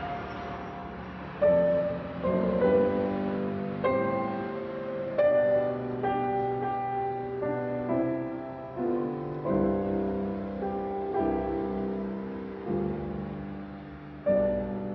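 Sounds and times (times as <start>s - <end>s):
slow quiet piano chords: 0.0s - 14.9s.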